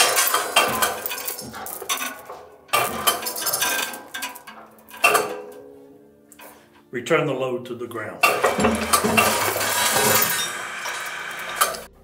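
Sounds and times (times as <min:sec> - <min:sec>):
steel plate clanking and scraping: 0:00.0 - 0:05.6, 0:08.2 - 0:11.9
steel ringing: 0:00.0 - 0:05.6, 0:08.2 - 0:12.0.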